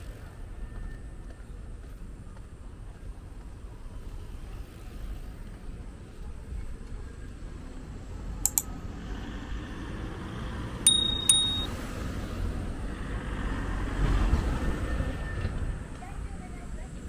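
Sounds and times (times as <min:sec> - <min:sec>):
street traffic: 0:00.0 - 0:17.0
car passing: 0:08.1 - 0:15.9
mouse clicks: 0:08.5 - 0:08.7
bell ding: 0:10.9 - 0:11.7.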